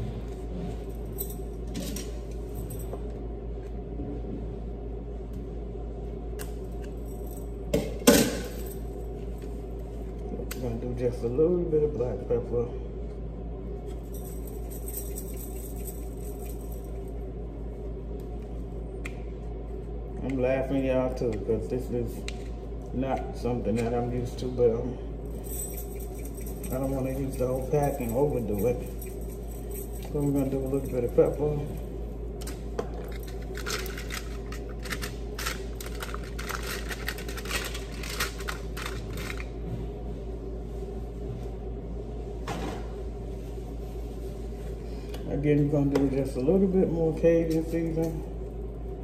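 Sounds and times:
steady low hum: 0.0 - 49.0
plastic packet crinkling: 33.4 - 39.5.

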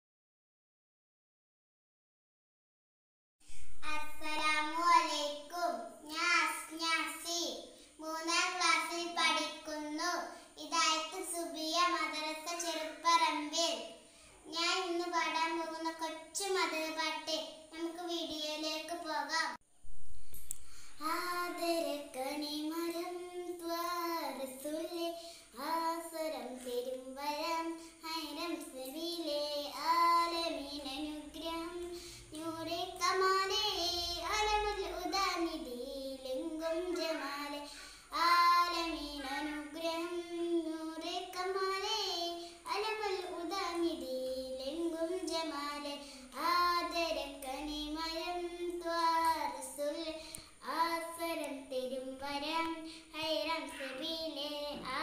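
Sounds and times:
girl singing solo: 20.6 - 55.0.

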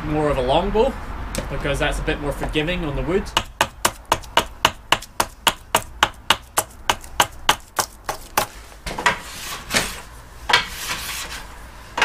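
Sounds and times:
hatchet chopping wood: 3.4 - 8.5.

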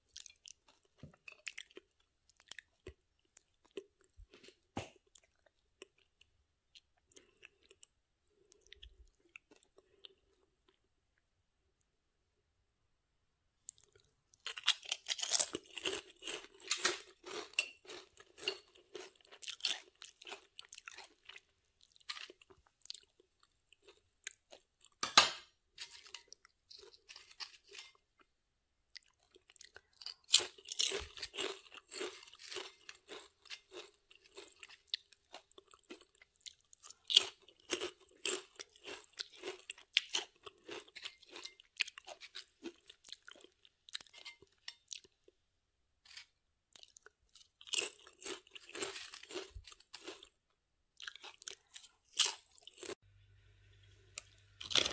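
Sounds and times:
potato chips crunching: 13.6 - 25.1, 25.8 - 28.3, 29.0 - 45.2, 46.1 - 50.4, 51.0 - 53.0, 54.2 - 54.9.

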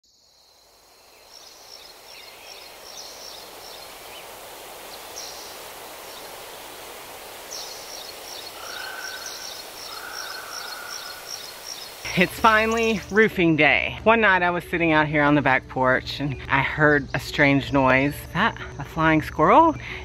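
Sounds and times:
steady hiss: 0.6 - 13.2
high chirping calls: 7.4 - 13.3.

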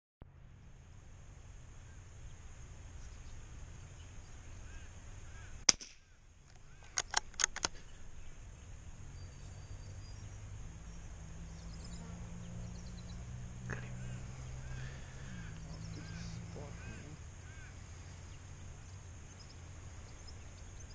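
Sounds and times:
rifle shot: 5.7 - 6.1
rifle bolt clicks: 5.7 - 7.8.

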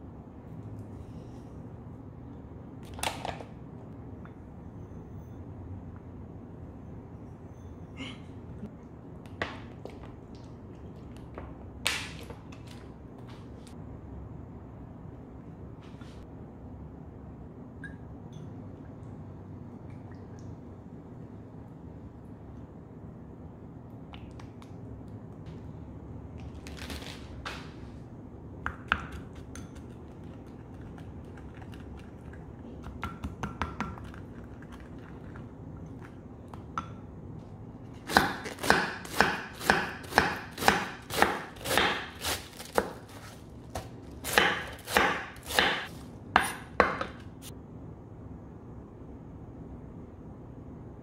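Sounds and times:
knife chopping on wooden board: 38.0 - 43.0, 44.3 - 47.2.

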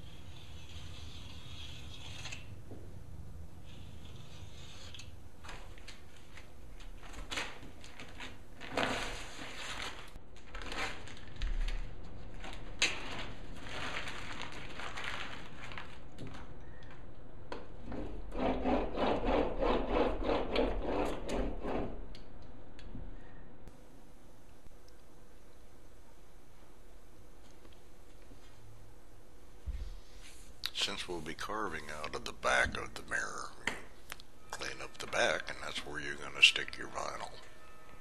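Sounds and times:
knife scraping on glass: 0.0 - 2.5.

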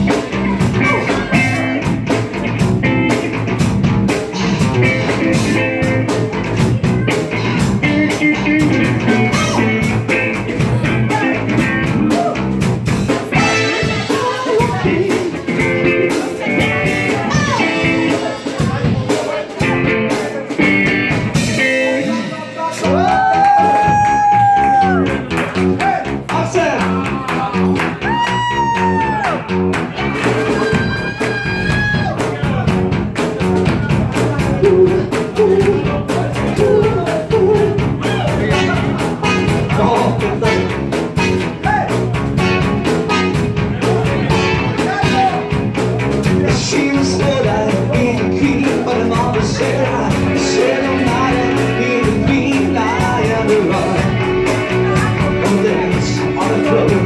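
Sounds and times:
drum kit: 0.0 - 57.0
electric guitar: 0.0 - 57.0
live rock and roll band: 0.0 - 57.0
person singing: 5.0 - 25.2, 34.0 - 42.0, 46.2 - 57.0.

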